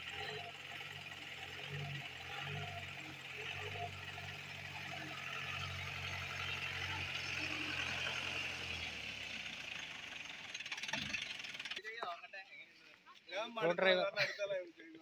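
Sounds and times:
jeep engine running at low speed: 0.0s - 11.8s.

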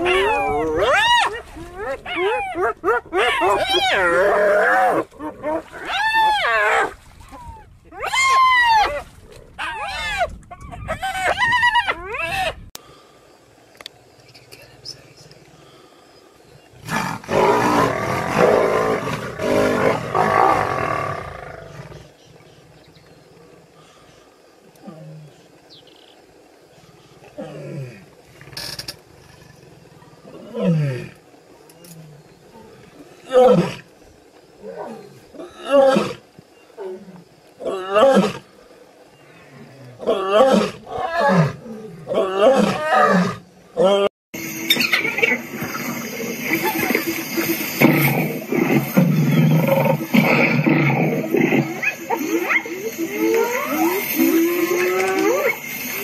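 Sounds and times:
big cats snarling and growling: 16.8s - 22.2s, 44.7s - 55.8s.

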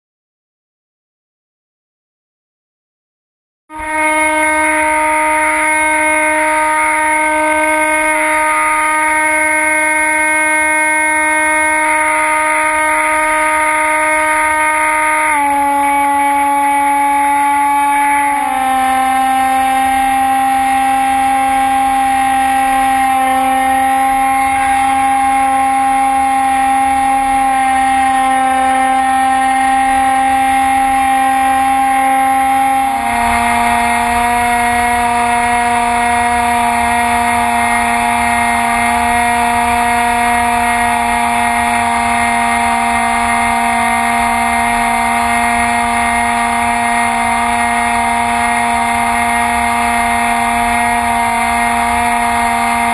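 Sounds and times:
electric motor and propeller whine: 3.7s - 52.9s.

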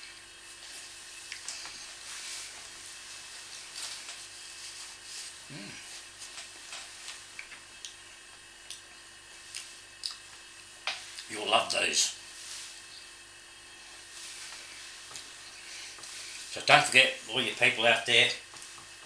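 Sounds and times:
low hum and hiss: 0.0s - 19.0s
paper napkin rustling: 0.5s - 7.3s, 11.8s - 12.9s, 13.9s - 17.0s
person humming: 5.5s - 6.0s.

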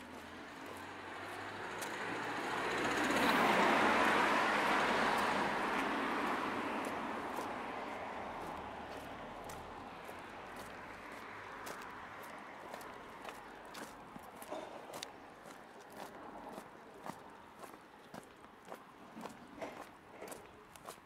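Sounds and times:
car passing by: 0.0s - 14.6s.

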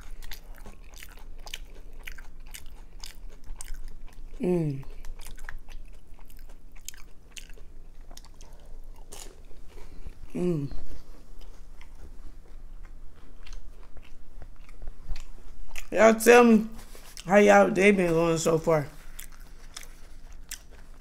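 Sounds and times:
chewing and eating: 0.0s - 17.4s, 18.0s - 21.0s
person humming mmm: 4.4s - 5.0s, 10.2s - 10.9s.

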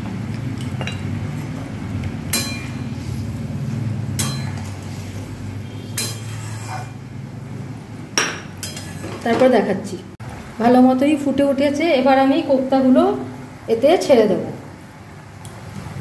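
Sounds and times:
spatula clinking against pan: 4.2s - 4.7s, 5.9s - 6.9s
spatula stirring curry in pan: 6.0s - 7.0s.

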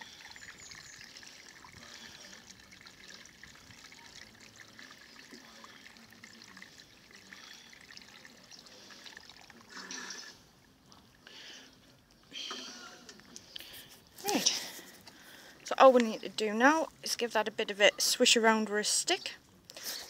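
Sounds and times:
water pouring from watering can: 0.0s - 11.2s.

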